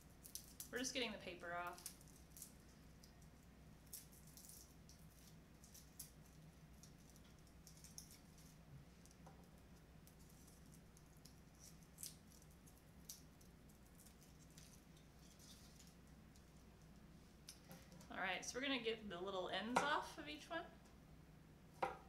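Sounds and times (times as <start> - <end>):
garlic skins crackling: 0.0 - 8.6.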